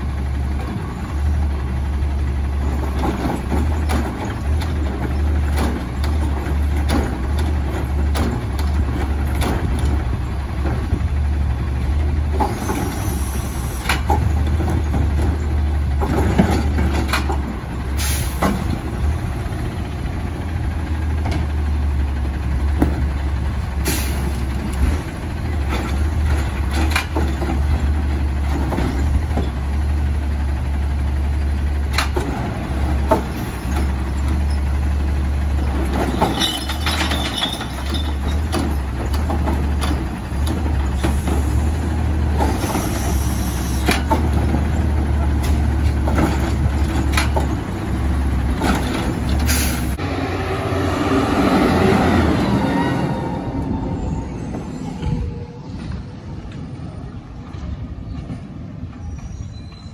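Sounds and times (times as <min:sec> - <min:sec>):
carts clanking and knocking: 0:00.0 - 0:50.0
garbage truck running: 0:00.0 - 0:59.4.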